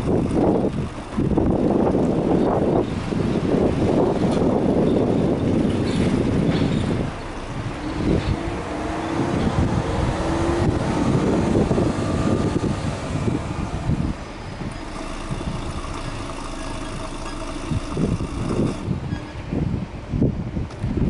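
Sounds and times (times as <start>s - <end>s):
car engine exhaust revving: 0.0s - 19.1s.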